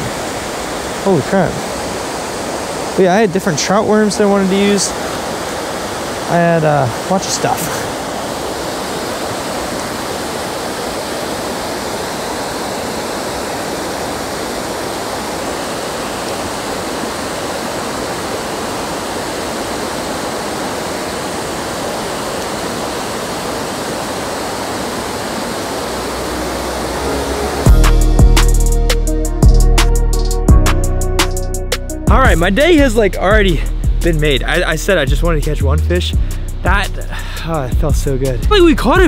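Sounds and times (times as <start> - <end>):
water rushing over spillway: 0.0 - 27.7.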